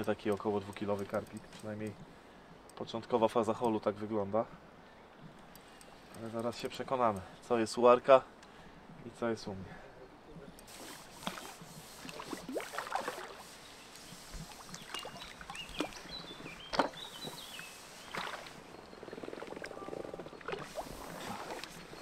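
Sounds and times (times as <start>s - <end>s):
water sloshing: 10.7s - 22.0s
fish splashing and thrashing: 10.8s - 13.4s, 14.4s - 22.0s.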